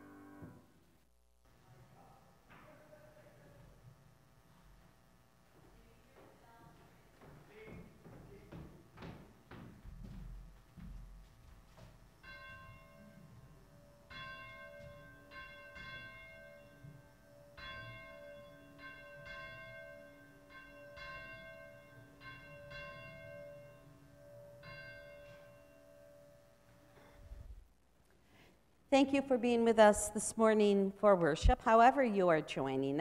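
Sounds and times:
church bell chimes: 12.2s - 26.7s.

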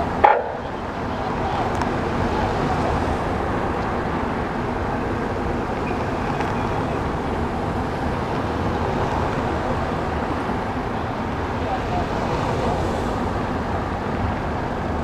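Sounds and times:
cars driving over cobblestones: 0.0s - 15.0s.

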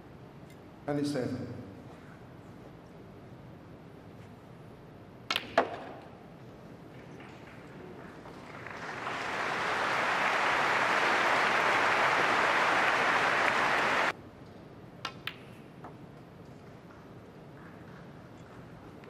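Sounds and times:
audience applauding: 7.4s - 14.1s.

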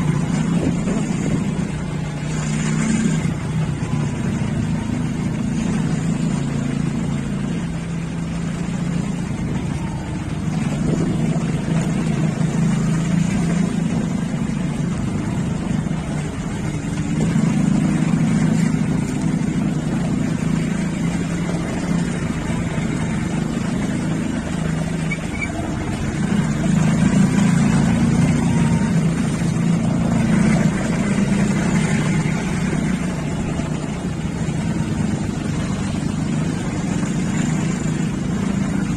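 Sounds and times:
motorcycle engine running: 0.0s - 38.9s
wind rushing over microphone: 9.3s - 12.0s.

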